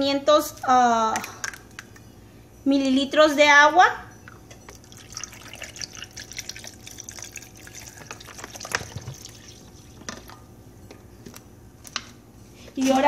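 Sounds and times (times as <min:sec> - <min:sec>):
water dripping: 0:04.2 - 0:10.4
water pouring into blender jar: 0:04.7 - 0:10.0.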